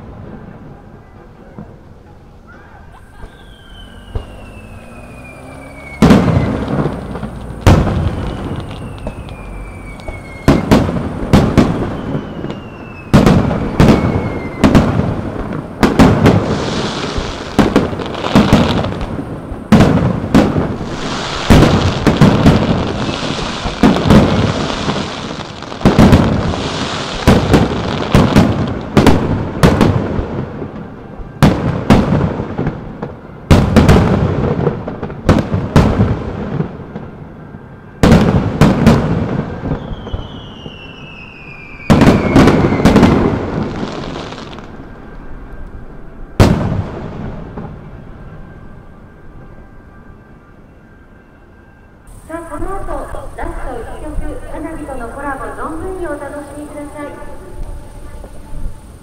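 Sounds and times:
fireworks bangs: 0:00.0 - 0:49.6, 0:52.1 - 0:59.0
fireworks crackle: 0:00.0 - 0:49.6, 0:52.0 - 0:59.0
falling fireworks whistles: 0:00.0 - 0:59.0.

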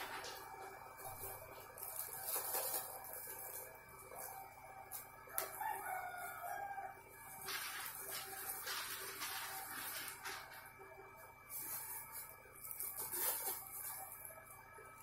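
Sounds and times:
plastic bags rustling: 0:00.0 - 0:04.5, 0:07.2 - 0:14.3
rooster crowing: 0:05.1 - 0:08.4.

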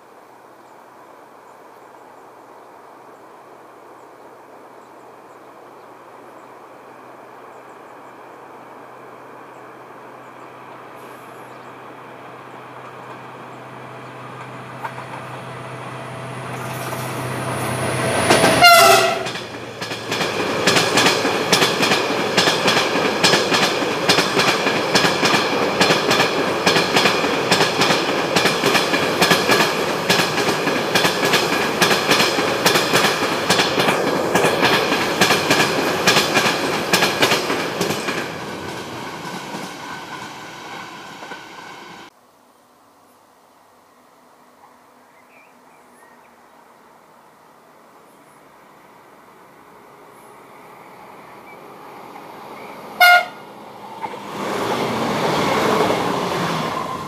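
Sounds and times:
locomotive low hum: 0:07.6 - 0:42.1.

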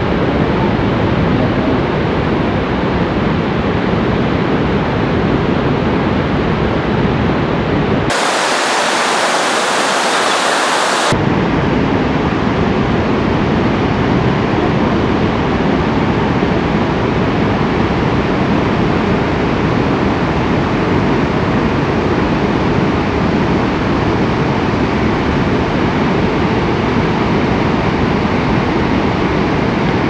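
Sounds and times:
waterfall rushing: 0:08.1 - 0:11.2.

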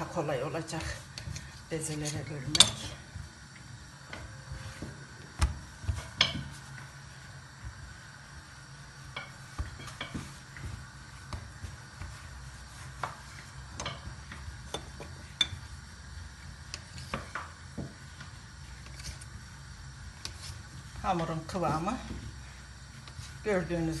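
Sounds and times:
hands handling dough on granite: 0:00.7 - 0:19.4.

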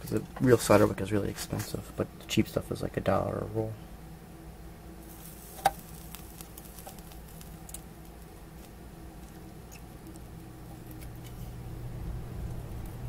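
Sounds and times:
low steady hum: 0:00.0 - 0:13.0
solder crackling: 0:05.0 - 0:13.0.

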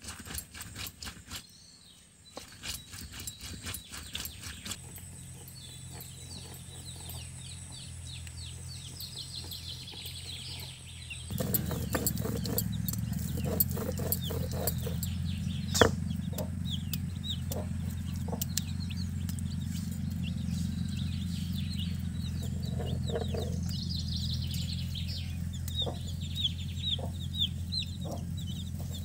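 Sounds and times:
stone roller grinding on stone: 0:00.0 - 0:01.6, 0:02.4 - 0:07.6, 0:11.3 - 0:16.5, 0:21.6 - 0:24.7
chicks peeping: 0:02.4 - 0:29.0
chickens clucking: 0:04.6 - 0:29.0
steady low rumble: 0:04.8 - 0:29.0.

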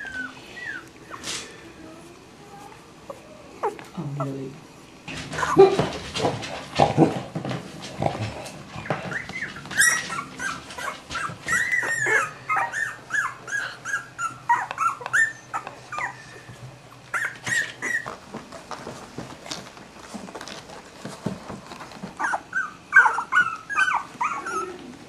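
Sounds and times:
dog whimpering: 0:00.0 - 0:04.5, 0:08.8 - 0:18.2, 0:22.2 - 0:25.0.

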